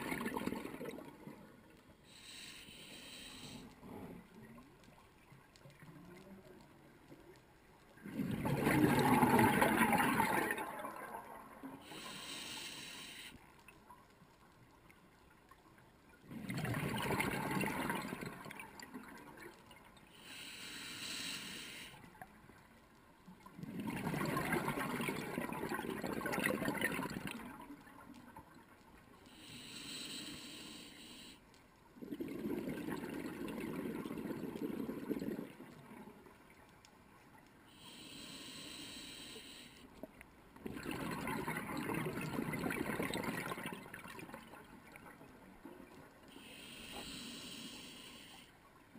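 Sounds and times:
regulator inhale hiss: 2.0 - 3.9, 11.8 - 13.5, 20.1 - 22.2, 29.3 - 31.5, 37.7 - 40.0, 46.3 - 48.6
exhaled bubbles rushing: 8.0 - 11.6, 16.3 - 19.2, 23.7 - 27.6, 32.0 - 36.0, 40.6 - 44.5.

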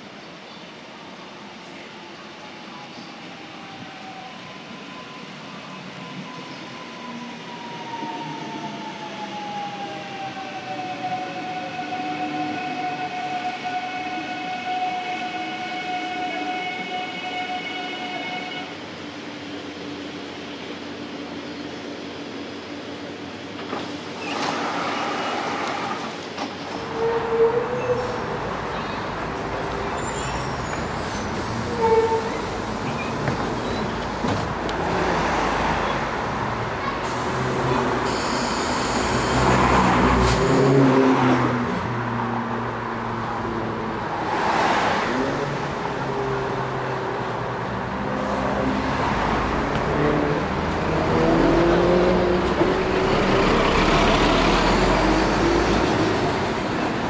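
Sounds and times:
street traffic: 0.0 - 57.0
bus engine accelerating: 18.8 - 57.0.

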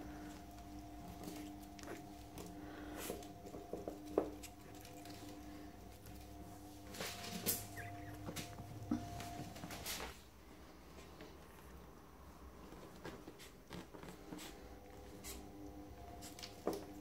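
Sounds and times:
faint steady hum: 0.0 - 17.0
puppy rustling on blanket: 0.1 - 10.2.

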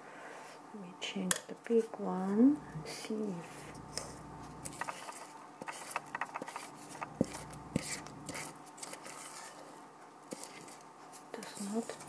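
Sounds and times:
spatula scraping bowl: 2.6 - 9.3
sharp clicks: 3.6 - 8.4.

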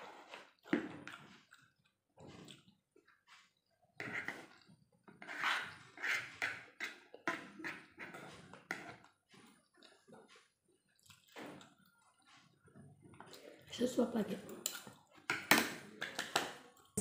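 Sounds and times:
person chewing food: 0.0 - 13.6
metal spoon scraping plastic plate: 4.0 - 9.1.

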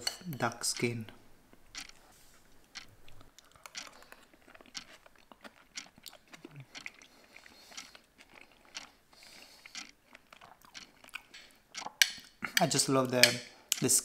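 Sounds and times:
person chewing crunchy food: 1.5 - 12.7.

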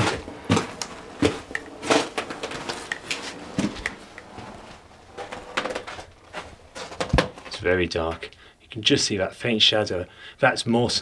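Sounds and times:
footsteps in wooden hut: 0.0 - 8.3.

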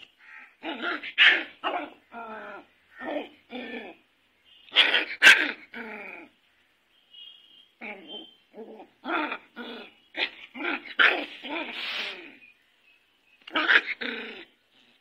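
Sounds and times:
puppy barking: 0.6 - 2.0, 4.7 - 5.7, 10.2 - 11.9, 13.5 - 14.0.

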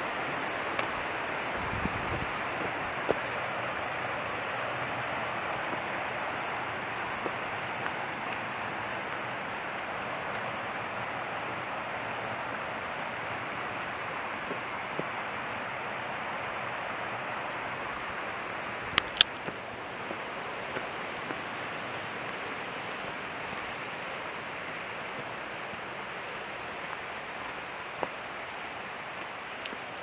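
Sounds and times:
small waterfall rushing: 0.0 - 30.0
sharp clicks: 18.9 - 19.6.

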